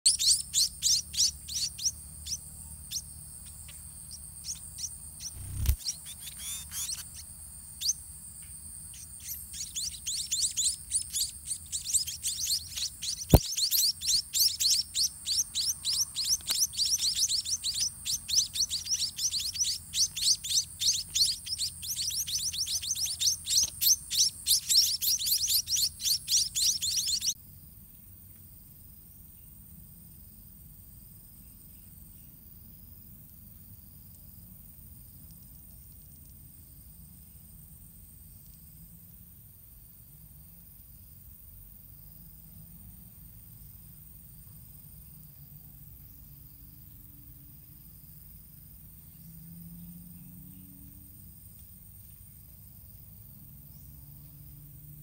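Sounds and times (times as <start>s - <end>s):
nestlings cheeping: 0.0s - 8.0s, 8.8s - 27.4s
sharp click: 13.1s - 13.9s.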